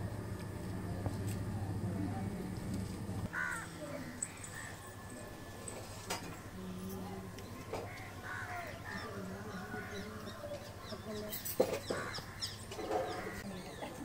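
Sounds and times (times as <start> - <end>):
birds calling: 3.3 - 5.6, 6.4 - 14.0.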